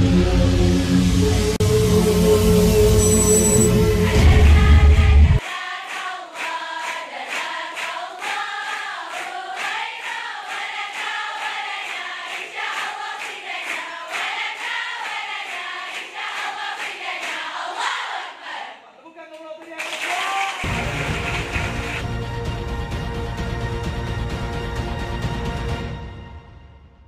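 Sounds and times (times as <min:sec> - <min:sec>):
bass-heavy music: 0:00.0 - 0:05.4, 0:20.7 - 0:25.6
girls singing in unison: 0:04.0 - 0:18.8
rhythmic clapping: 0:05.4 - 0:18.3, 0:19.2 - 0:22.0.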